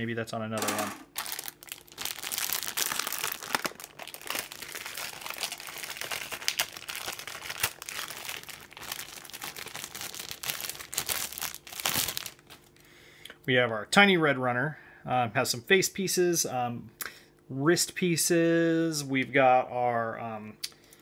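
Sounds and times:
plastic bags rustling: 0.6 - 12.8.

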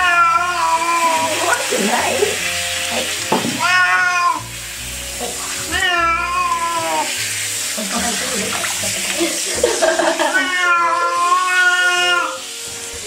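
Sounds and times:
cat meowing: 0.0 - 1.6, 3.5 - 4.5, 5.6 - 7.1, 10.3 - 12.5.

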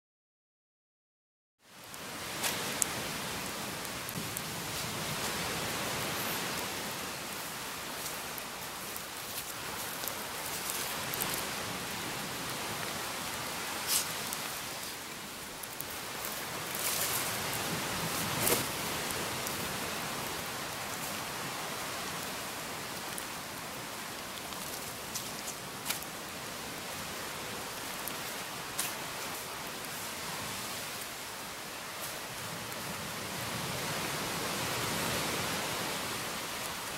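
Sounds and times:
campfire crackling: 1.6 - 36.9
fire pops: 18.1 - 19.6.

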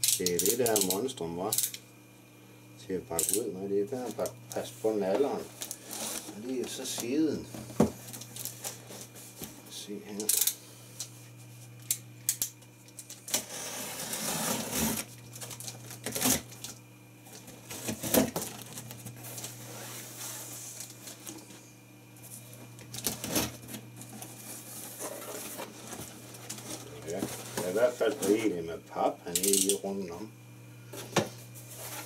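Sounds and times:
box cutter slitting packing tape: 13.3 - 15.1.

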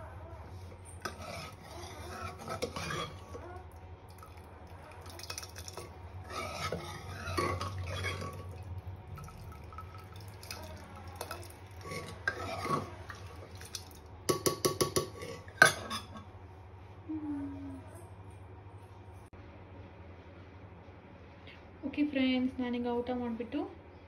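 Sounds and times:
low steady hum: 0.0 - 24.0
ladle scraping metal pot: 0.6 - 3.4, 5.0 - 16.2
liquid sloshing: 4.1 - 14.0.

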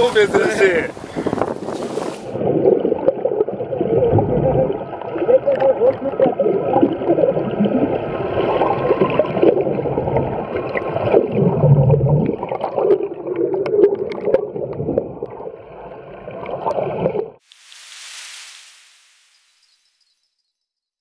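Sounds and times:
gurgling water and bubbles: 0.9 - 17.8
short hiss: 1.6 - 2.4, 17.4 - 19.8
whale moans and whines: 3.8 - 7.9.

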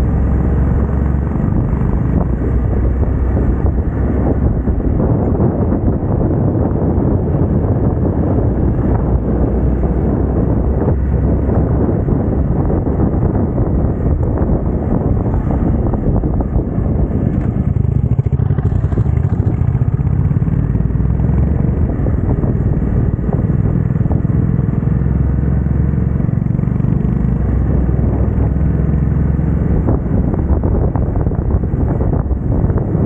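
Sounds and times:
motorcycle engine running: 0.0 - 33.0.

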